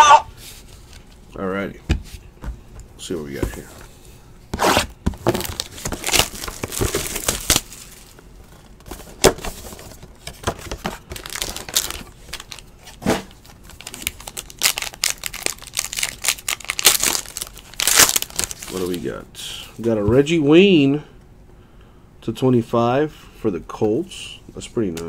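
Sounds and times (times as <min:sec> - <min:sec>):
cardboard box rustling and crinkling: 0:04.7 - 0:18.9.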